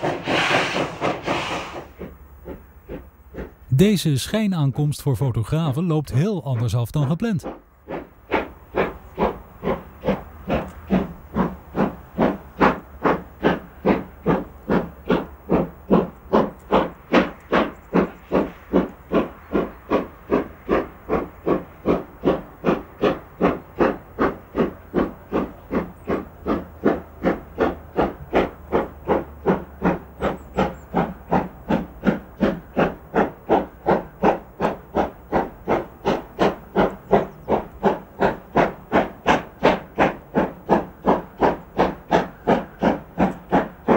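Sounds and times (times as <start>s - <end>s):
steam hiss: 0.0s - 2.1s
steam locomotive chuffing: 0.0s - 43.9s.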